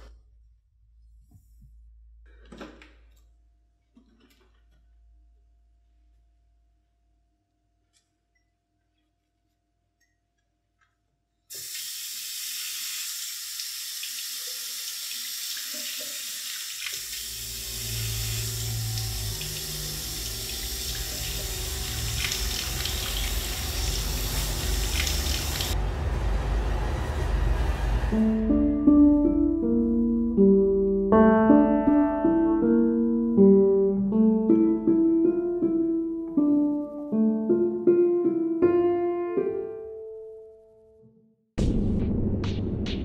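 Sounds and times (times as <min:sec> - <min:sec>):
tap water running into sink: 0:11.5 - 0:25.8
deeper water sound: 0:16.9 - 0:28.2
slow sustained keyboard notes: 0:17.4 - 0:41.3.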